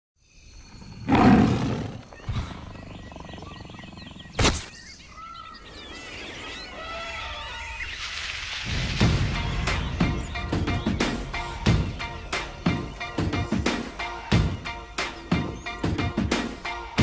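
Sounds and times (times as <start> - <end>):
jungle background: 0.2 - 17.0
birds chirping and calling: 0.3 - 16.8
big cat roaring: 0.9 - 4.4.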